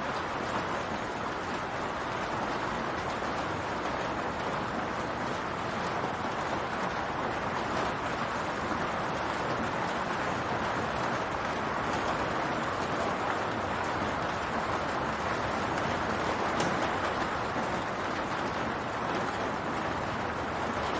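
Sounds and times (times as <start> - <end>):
rain falling on a roof: 0.0 - 20.9.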